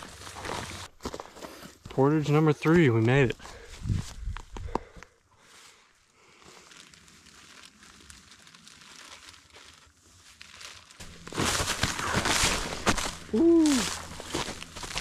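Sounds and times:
footsteps crunching through frozen brush: 0:00.0 - 0:15.0.

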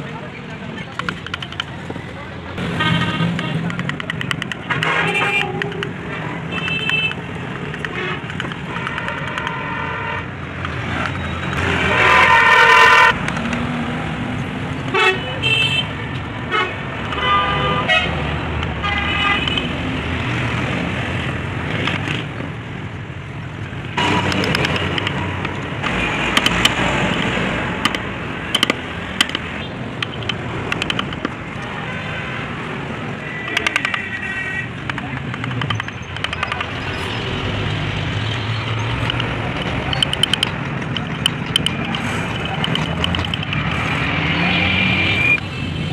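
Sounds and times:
road traffic: 0:00.0 - 0:45.9
sharp clicks: 0:00.9 - 0:02.0, 0:03.3 - 0:09.6, 0:13.1 - 0:13.7, 0:23.8 - 0:31.7, 0:33.4 - 0:44.3
vehicle horns honking: 0:02.6 - 0:03.7, 0:04.6 - 0:07.3, 0:07.9 - 0:10.3, 0:11.7 - 0:13.2, 0:14.9 - 0:18.2.

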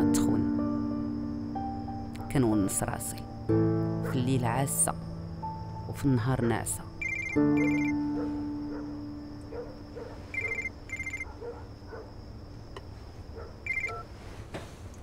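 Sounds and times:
mobile phone ringing: 0:07.0 - 0:08.0, 0:10.3 - 0:11.3, 0:13.7 - 0:14.0.

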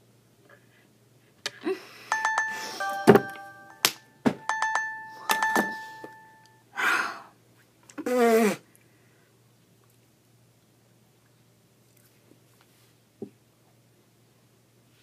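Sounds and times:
loud breath: 0:06.8 - 0:07.4.

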